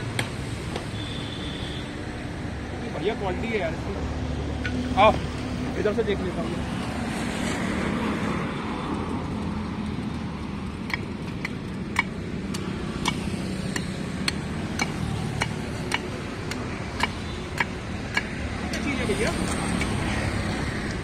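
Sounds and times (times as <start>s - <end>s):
road traffic: 0.0s - 21.0s
blade chopping wooden sticks: 10.8s - 20.1s.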